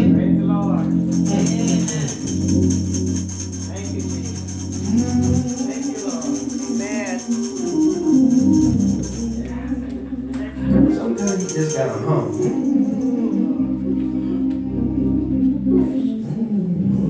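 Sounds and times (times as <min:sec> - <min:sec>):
sustained low instrumental notes: 0:00.0 - 0:16.0
tambourine shaken: 0:00.7 - 0:09.9, 0:11.1 - 0:13.6.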